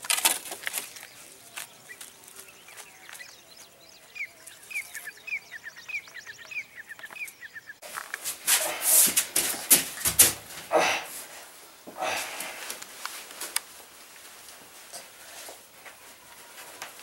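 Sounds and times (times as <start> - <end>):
rustling and scuffling of struggle: 7.8 - 17.0.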